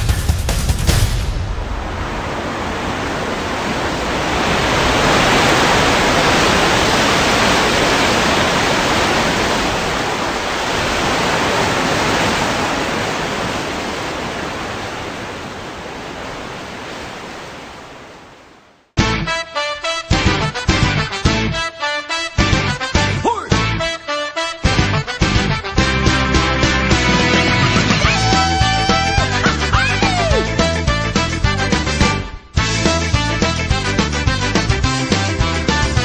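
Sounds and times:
steady rushing noise: 0.0s - 18.9s.

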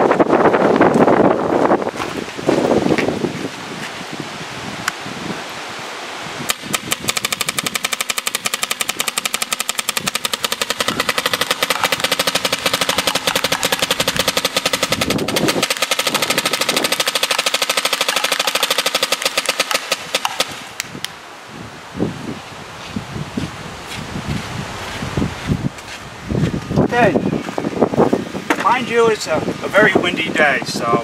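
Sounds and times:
paintball marker rapid firing: 6.5s - 20.9s.

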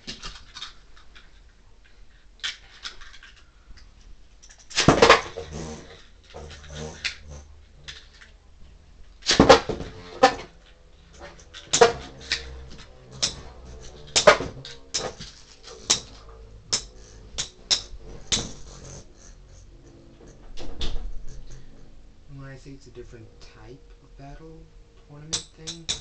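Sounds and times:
spinning tops clashing: 9.2s - 21.7s.

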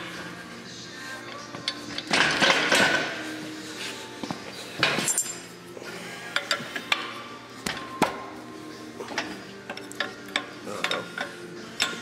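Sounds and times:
metal tools clinking and knocking: 4.8s - 5.4s.

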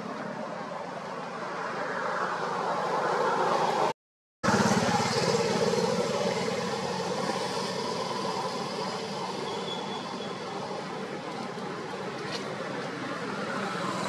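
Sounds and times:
vehicle engine passing: 3.6s - 9.2s.

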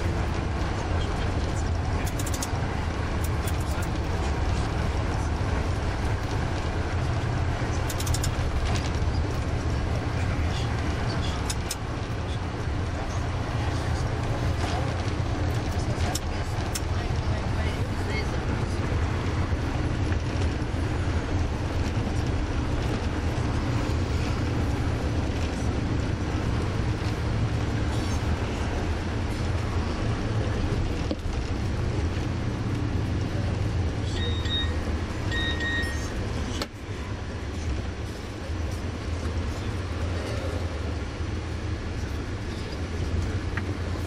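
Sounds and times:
coach engine and road rumble: 0.0s - 44.0s
short high beeps: 34.1s - 36.2s.

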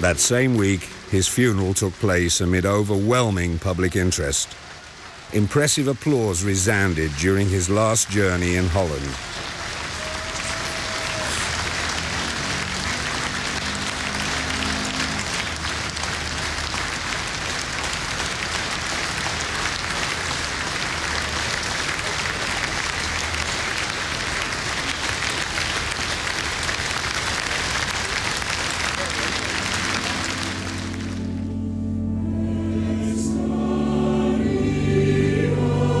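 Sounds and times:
large crowd applauding: 0.0s - 31.6s.

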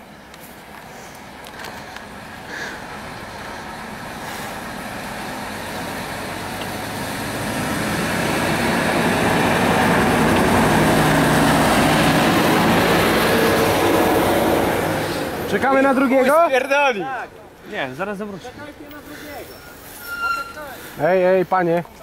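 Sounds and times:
bus engine hum: 0.0s - 16.4s.

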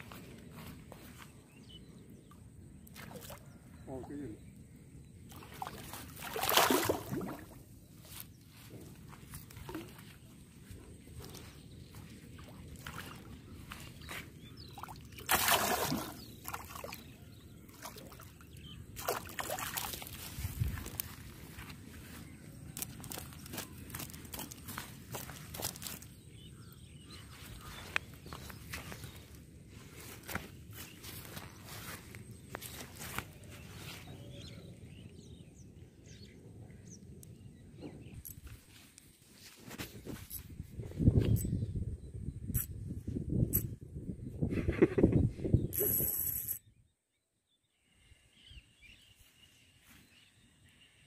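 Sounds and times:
small birds chirping: 0.0s - 51.0s
fish splashing and thrashing: 5.3s - 7.6s, 14.8s - 17.1s, 17.7s - 21.6s, 22.8s - 26.1s.

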